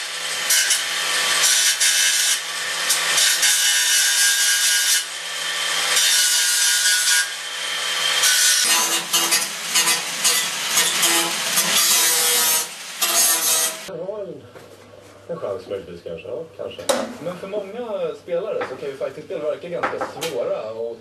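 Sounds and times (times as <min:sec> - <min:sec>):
angle grinder cutting steel: 0:00.0 - 0:13.9.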